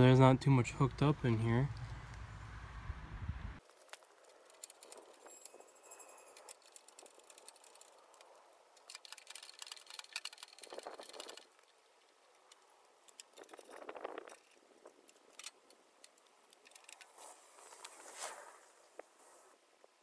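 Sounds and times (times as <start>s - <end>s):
dull scuffing: 17.2s - 19.5s.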